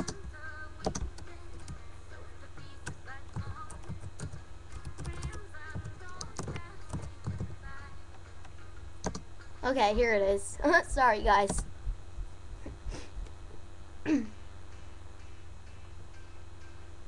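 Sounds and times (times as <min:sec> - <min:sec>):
keyboard typing: 0:00.0 - 0:01.8, 0:02.8 - 0:07.5, 0:09.0 - 0:09.2
music playing low: 0:00.0 - 0:17.0.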